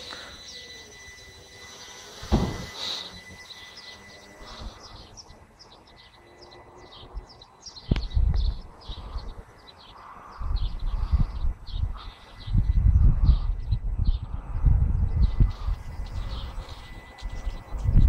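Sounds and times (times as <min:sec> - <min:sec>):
small songbirds chirping: 0:02.8 - 0:18.0
wind buffeting microphone: 0:07.1 - 0:18.0.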